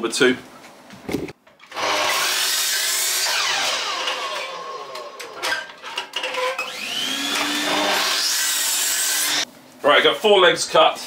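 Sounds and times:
mitre saw blade whirring: 1.6 - 9.5.

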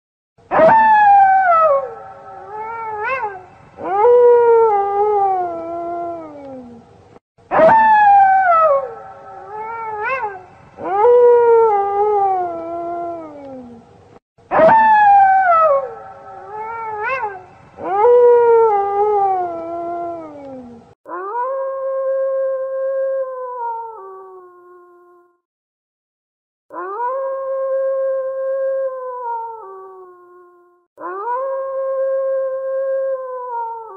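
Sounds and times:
wolf yelping: 0.5 - 6.4, 7.5 - 13.4, 14.5 - 20.4
wolf howling: 0.5 - 6.8, 7.5 - 13.9, 14.5 - 24.8, 26.7 - 30.1, 31.0 - 33.9.

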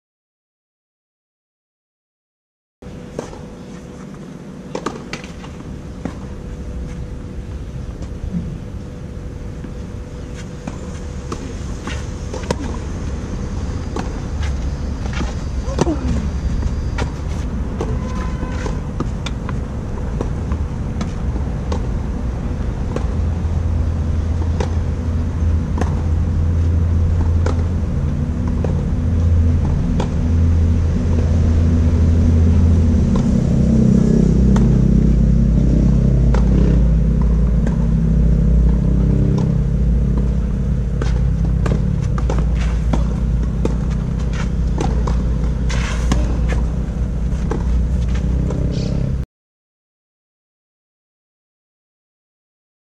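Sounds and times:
low engine-like rumble: 2.8 - 49.2
tennis balls being hit: 39.4 - 48.7.

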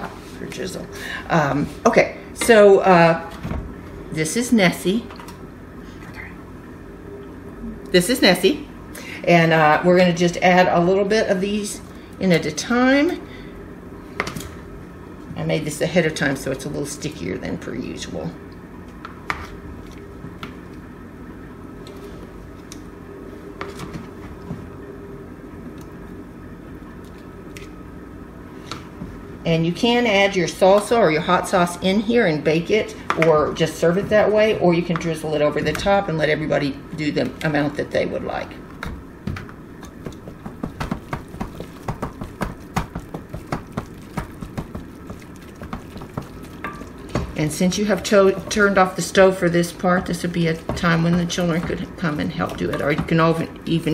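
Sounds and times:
steady low hum: 0.0 - 53.9
pasta added into sauce: 39.9 - 49.1.

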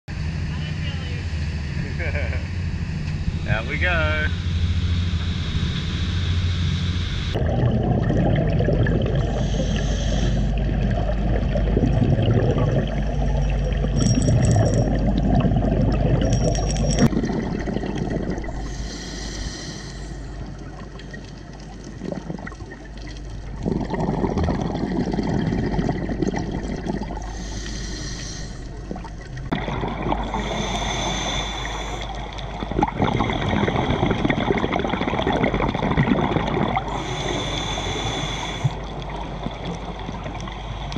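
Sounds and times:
boat engine: 0.1 - 21.4
churning wake: 0.1 - 40.9
muffled underwater water noise: 0.1 - 40.9
underwater bubbling: 3.4 - 40.9.

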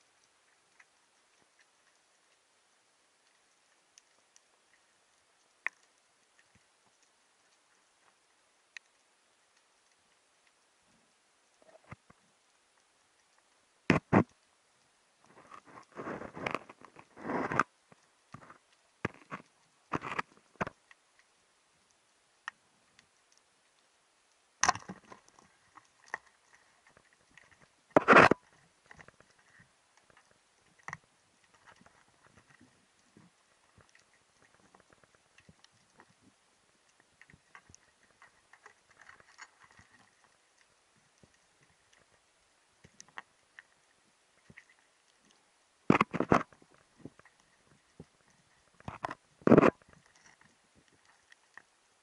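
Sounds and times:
crackling knocks underwater: 11.5 - 12.2, 13.2 - 14.4, 15.2 - 21.0, 24.6 - 42.2, 44.4 - 51.7
underwater clicks and taps: 24.6 - 29.4, 44.4 - 48.2.

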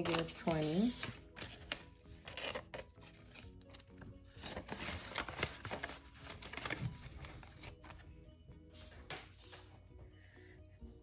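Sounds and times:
envelope and banknotes crinkling: 0.0 - 8.0
quiet background music: 0.0 - 11.0.

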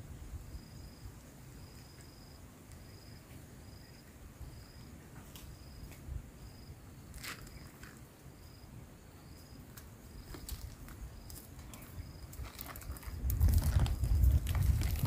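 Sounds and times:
insect chirping: 0.0 - 15.0
footsteps on soil and plants: 10.2 - 15.0.

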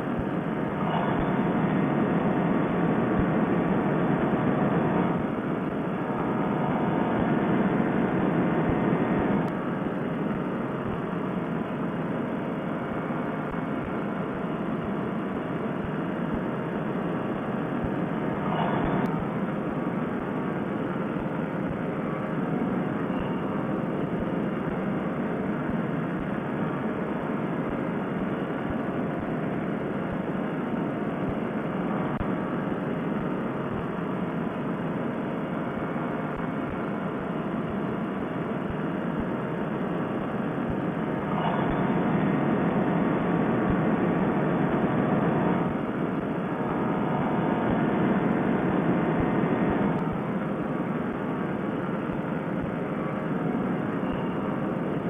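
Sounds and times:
paramotor engine drone: 0.0 - 55.0.

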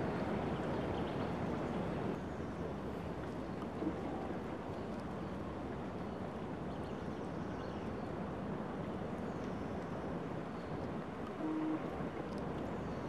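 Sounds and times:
brief low tone: 11.4 - 11.9.

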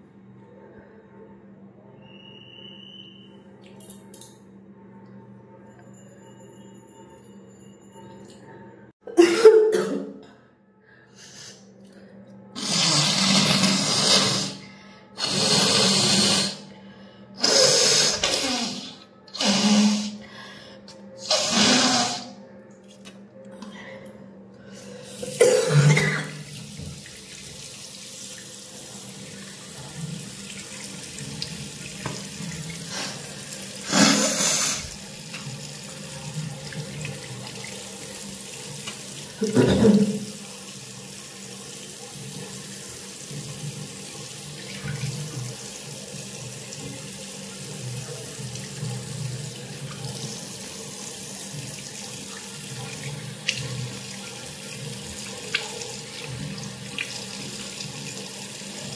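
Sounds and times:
tap water running into sink: 25.2 - 58.9.

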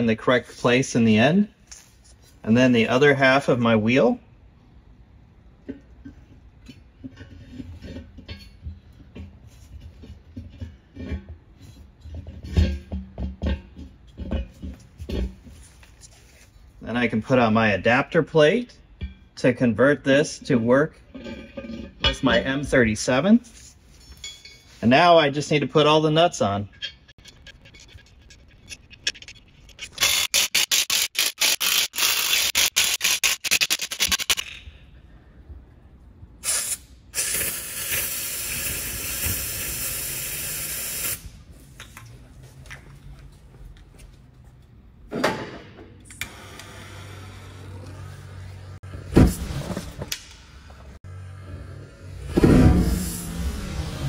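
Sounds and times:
metal clinks and knocks: 23.9 - 24.8, 26.7 - 30.0
power wrench bursts: 30.0 - 34.4.

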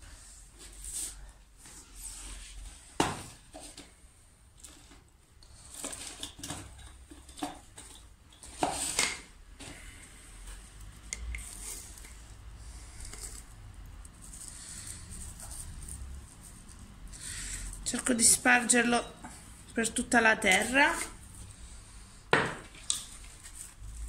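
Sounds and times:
gardening tools clicking and clinking: 19.8 - 21.2.

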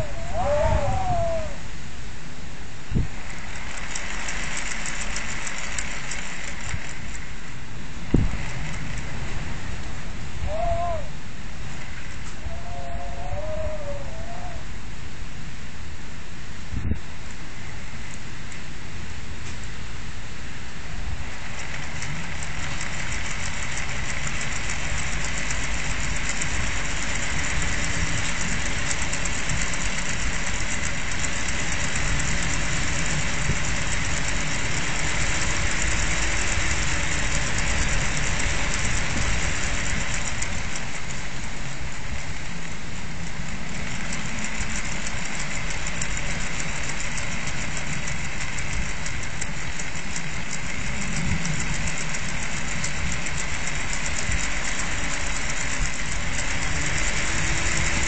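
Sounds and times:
toy propeller whirring: 0.0 - 1.7, 2.9 - 14.7, 21.0 - 58.0
strong wind rushing at window: 0.0 - 58.0.

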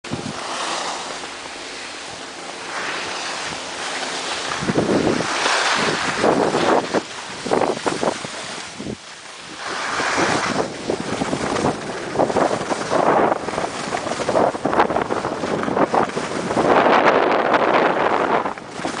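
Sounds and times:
wind buffeting microphone: 0.0 - 19.0
skis scraping over snow: 0.1 - 19.0.

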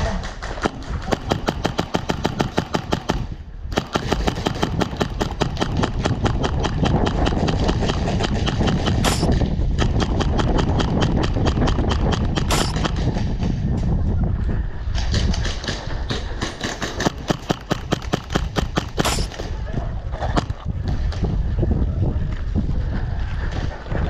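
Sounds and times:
airsoft rifle automatic fire: 0.5 - 13.4, 16.4 - 19.5.

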